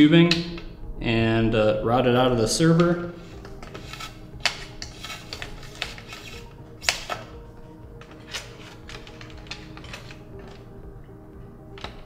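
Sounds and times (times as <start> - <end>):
quiet background music: 0.0 - 12.0.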